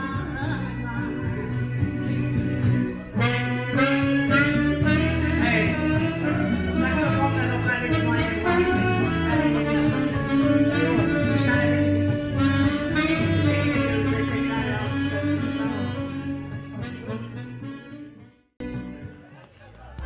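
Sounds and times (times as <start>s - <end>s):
saxophone melody over backing track: 0.0s - 19.1s.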